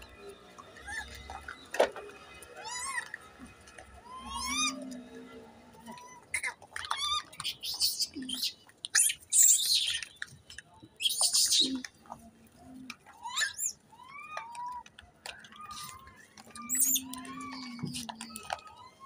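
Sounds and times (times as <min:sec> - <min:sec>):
monkeys chirping: 0:00.6 - 0:01.7, 0:04.0 - 0:05.0, 0:05.8 - 0:19.0
young monkeys squealing: 0:00.7 - 0:01.5, 0:02.6 - 0:03.2, 0:04.0 - 0:05.0, 0:05.8 - 0:10.1, 0:11.0 - 0:11.9, 0:13.0 - 0:19.0.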